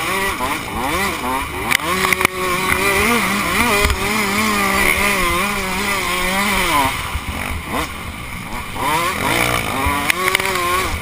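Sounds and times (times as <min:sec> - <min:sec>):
two-stroke dirt bike engine revving: 0:00.0 - 0:11.0.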